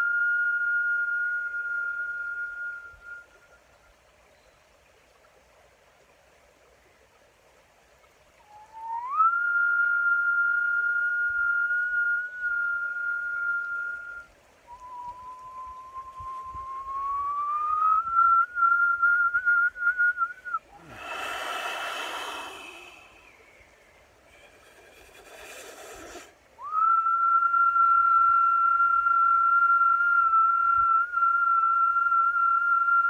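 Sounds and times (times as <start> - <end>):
man whistling: 0.0 - 3.6, 8.4 - 23.6, 24.3 - 33.0
breathy exhales: 20.7 - 26.4.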